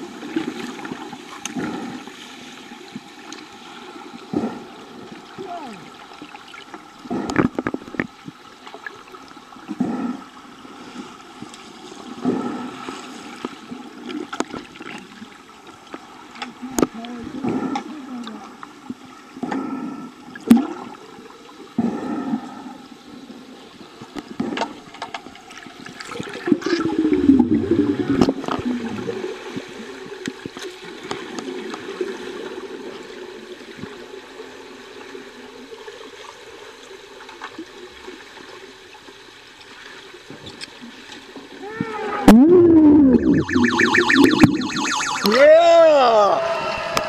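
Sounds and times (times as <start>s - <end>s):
underwater rushing and bubbling: 0.0s - 47.0s.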